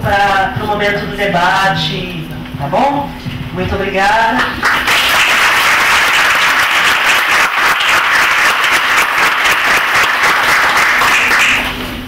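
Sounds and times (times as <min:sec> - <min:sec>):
audience applauding: 0:04.4 - 0:11.9.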